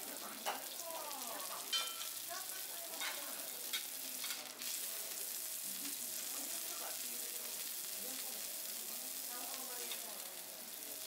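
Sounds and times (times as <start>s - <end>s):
food sizzling on a griddle: 0.0s - 11.0s
metal utensils clinking on hot plate: 0.4s - 0.8s, 1.5s - 2.2s, 2.9s - 4.7s.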